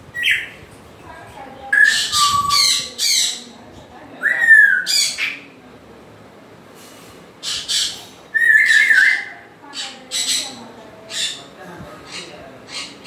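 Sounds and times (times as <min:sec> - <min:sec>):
parrot squawking: 0:01.7 - 0:03.5, 0:04.2 - 0:05.4, 0:07.4 - 0:13.0
parrot whistling: 0:07.5 - 0:09.3.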